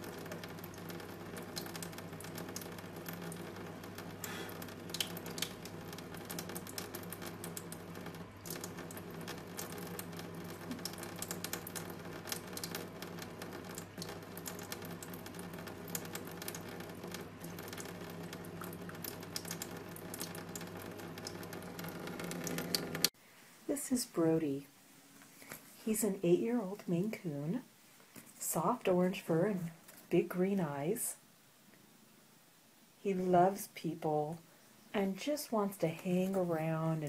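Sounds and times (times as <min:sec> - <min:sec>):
tap water running into sink: 0:00.0 - 0:23.1.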